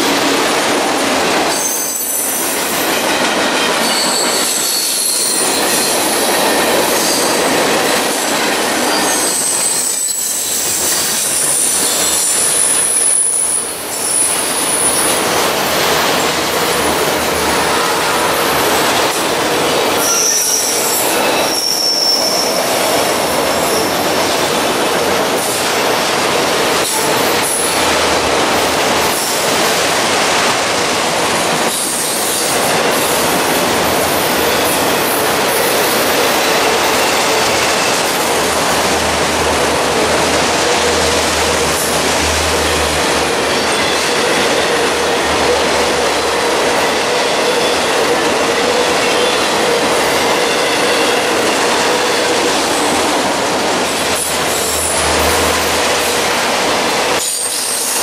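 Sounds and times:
freight train wheels rumbling: 0:00.0 - 0:58.0
high-pitched wheel squeals: 0:01.5 - 0:03.0, 0:03.8 - 0:07.4, 0:08.9 - 0:15.3, 0:19.8 - 0:22.8.

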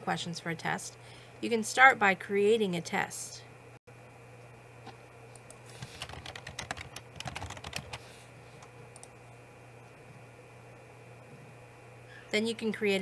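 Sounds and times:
typing on keyboard: 0:05.8 - 0:08.0.

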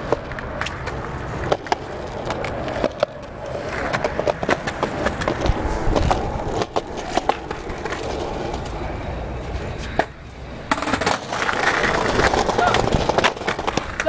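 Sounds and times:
skateboard rolling over brick: 0:00.0 - 0:14.0
skateboard wheels rolling on concrete: 0:00.0 - 0:14.0
skateboard loud clack: 0:09.8 - 0:14.0.

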